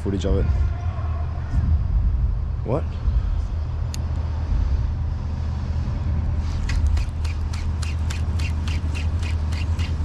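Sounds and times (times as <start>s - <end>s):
fishing reel drag clicking: 6.6s - 10.0s.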